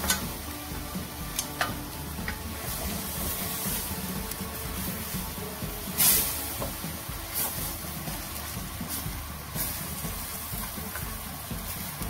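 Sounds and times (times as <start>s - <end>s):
spatula scraping a frying pan: 0.0s - 12.0s
steady hiss: 0.0s - 12.0s.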